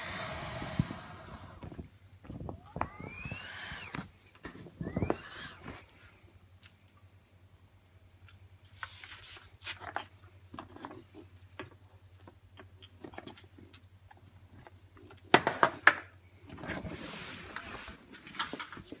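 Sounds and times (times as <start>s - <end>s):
rustle: 4.4s - 11.5s, 16.6s - 19.0s.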